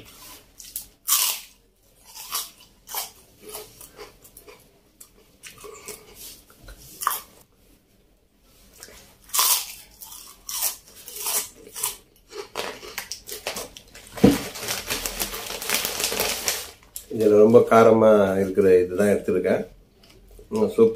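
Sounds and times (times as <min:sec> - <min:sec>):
crunching chips being chewed: 0:00.6 - 0:06.3, 0:08.8 - 0:17.1
plastic packet crinkling: 0:12.5 - 0:17.0.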